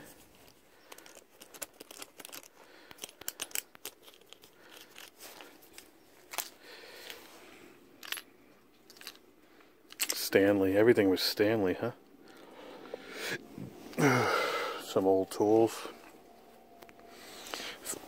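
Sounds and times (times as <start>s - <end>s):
hand tool clicking and rustling: 0.4s - 7.2s, 9.9s - 10.2s.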